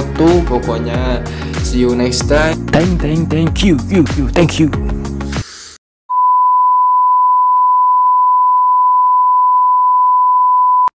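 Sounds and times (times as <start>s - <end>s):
background music: 0.0s - 5.5s
steady test tone beep: 6.1s - 10.9s.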